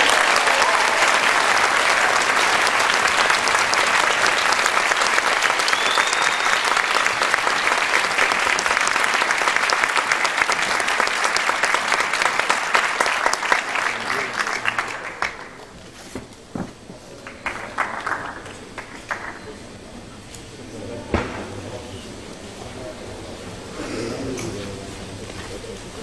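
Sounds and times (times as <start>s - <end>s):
audience applauding: 0.0s - 16.4s, 17.1s - 22.0s.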